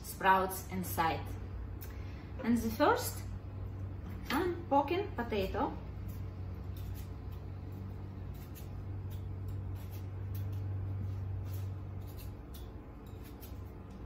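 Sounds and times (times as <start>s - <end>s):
steady low hum: 0.0s - 14.0s
fork pricking potato: 5.9s - 14.0s.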